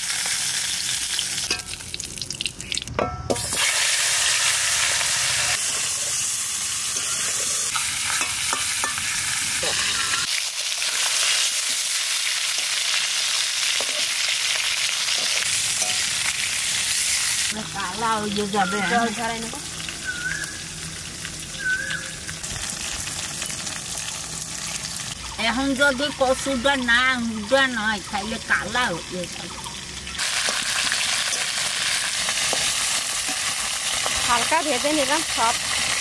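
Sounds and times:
fish sizzling in hot oil: 0.0 - 36.0.

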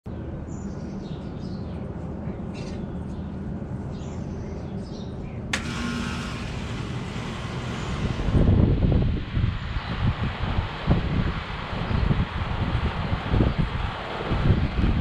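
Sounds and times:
heat pump low hum: 5.4 - 15.0
heat pump rushing noise: 5.5 - 15.0.

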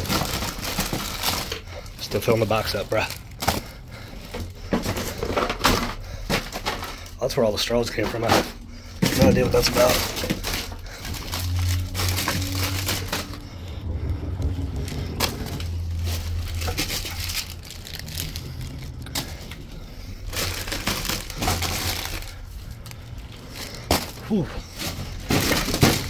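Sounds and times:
plastic wrappers crinkling: 0.0 - 26.0
packs dropping into cardboard box: 23.6 - 26.0.

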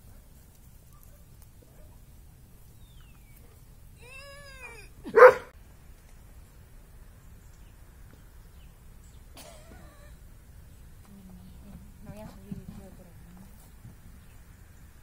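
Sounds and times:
dog barking: 0.9 - 2.0, 5.1 - 5.6
dog crying: 4.0 - 5.5.

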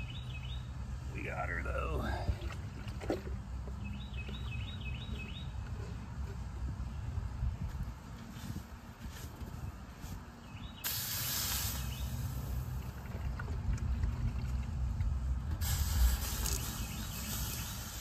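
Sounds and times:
steam hissing: 10.8 - 12.4, 15.6 - 18.0.

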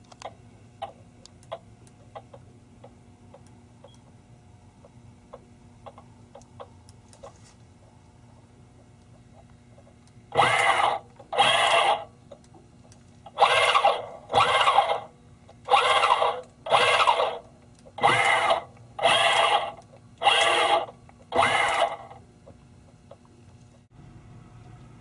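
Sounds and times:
electric motors whirring: 10.3 - 22.3.

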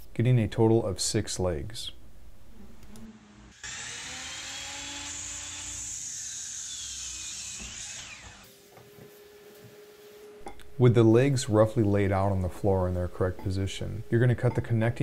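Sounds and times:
mitre saw cutting wood: 3.5 - 8.5.

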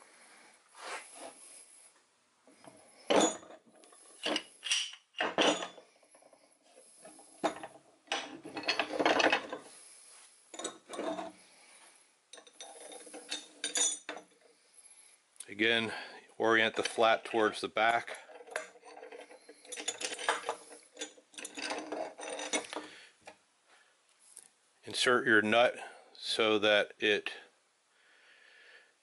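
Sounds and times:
metal vise parts clanking: 3.1 - 6.3, 7.1 - 9.7, 10.5 - 11.3, 12.4 - 14.4, 16.6 - 22.9.

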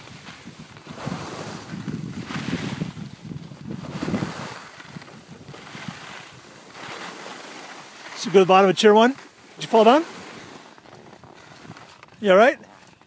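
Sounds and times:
wind buffeting microphone: 0.0 - 6.8.

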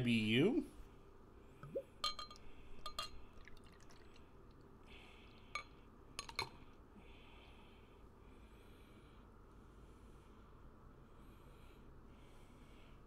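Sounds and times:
beer pouring into glass: 1.7 - 5.4
glass clinking: 2.0 - 4.0.

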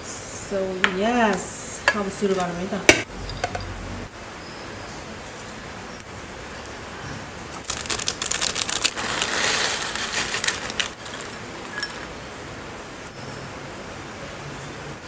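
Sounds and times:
dry noodles pattering into glass: 7.6 - 12.1
plastic packet crinkling: 7.6 - 12.1.

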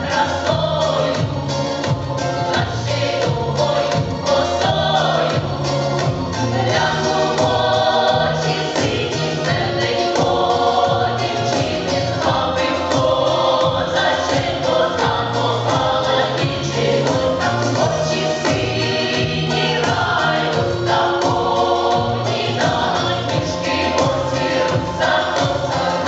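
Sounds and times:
folk vocal ensemble singing: 0.0 - 26.0.

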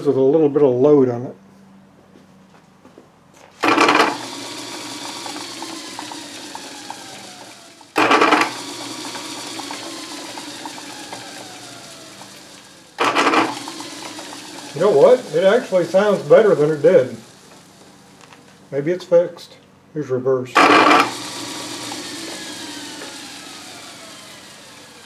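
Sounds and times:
electric motor starting and whirring: 3.5 - 19.0, 20.5 - 25.0.

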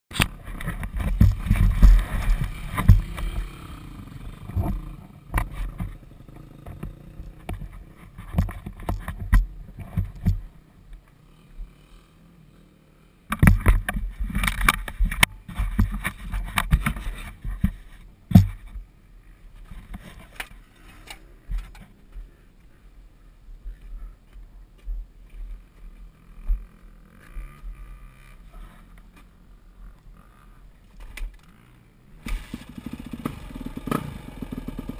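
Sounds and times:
camera handling knocks and rumbles: 0.2 - 3.4, 6.6 - 10.5, 13.3 - 18.8
dirt bike engine idling: 0.2 - 34.9.

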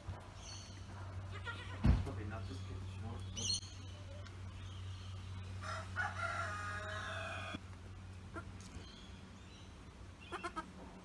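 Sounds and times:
goat kid bleating: 1.3 - 1.9, 10.2 - 10.7.

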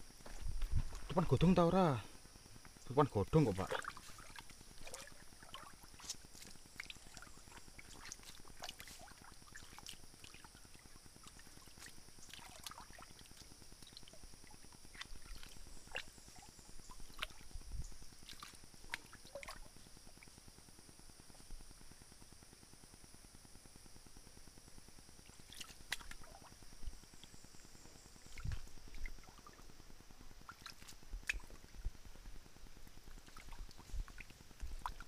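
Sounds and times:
steady high-pitched hum: 0.0 - 35.0
hand splashing in stream: 3.4 - 10.0.

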